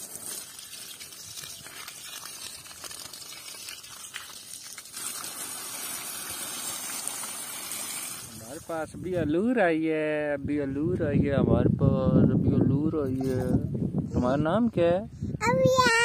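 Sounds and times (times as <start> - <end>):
hose water splashing into puddle: 0.0 - 8.9
water spraying into leaves: 0.0 - 8.9.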